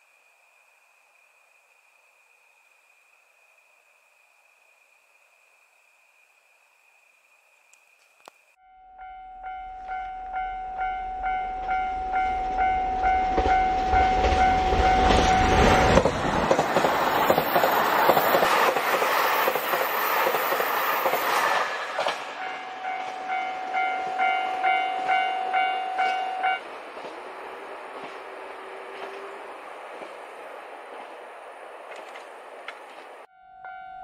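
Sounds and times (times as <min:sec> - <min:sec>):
level crossing bell ringing: 0:08.6 - 0:15.1, 0:22.4 - 0:26.6, 0:33.3 - 0:34.0
diesel train rumbling past: 0:09.0 - 0:33.8
train wheels clattering: 0:13.2 - 0:23.8.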